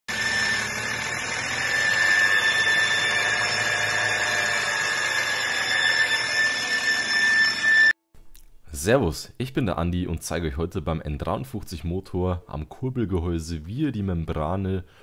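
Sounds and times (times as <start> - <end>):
high-pitched whistle: 0.1 - 8.0.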